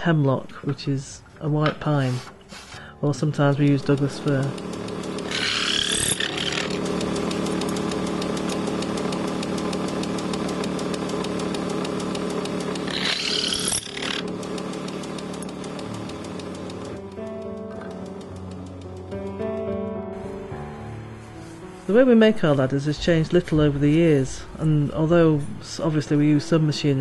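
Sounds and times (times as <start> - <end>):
music: 1.2 - 13.0, 14.1 - 27.0
woodworking machine rattling hum: 3.4 - 19.2
high-pitched wood cutting screech: 5.2 - 6.8, 12.7 - 14.3.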